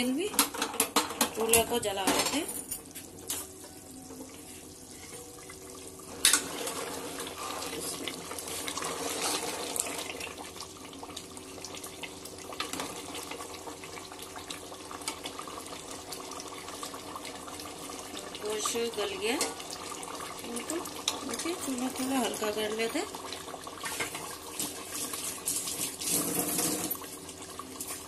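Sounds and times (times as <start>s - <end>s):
ladle stirring liquid in pot: 6.3s - 11.0s.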